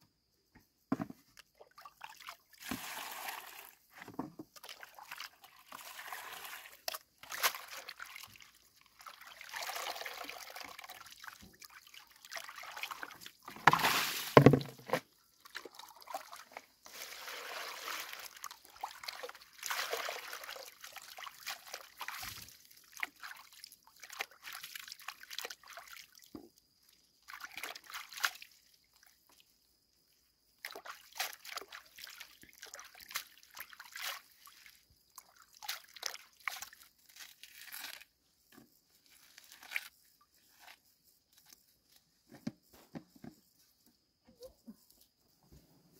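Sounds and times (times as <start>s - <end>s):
water sloshing in basin: 0.9s - 26.4s.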